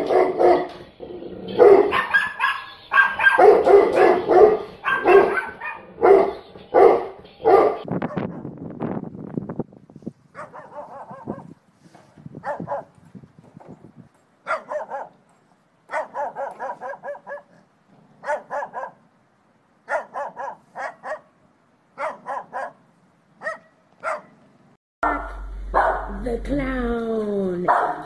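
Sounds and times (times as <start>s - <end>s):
dog barking: 0.0s - 0.8s, 1.5s - 8.5s, 10.4s - 11.6s, 12.4s - 12.9s, 14.4s - 15.2s, 15.9s - 19.0s, 19.9s - 21.3s, 22.0s - 22.8s, 23.4s - 24.4s, 25.0s - 26.2s, 27.7s - 28.0s.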